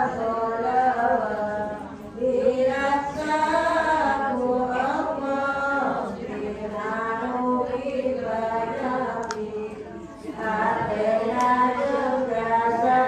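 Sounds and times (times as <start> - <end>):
women chanting in unison: 0.0 - 13.0.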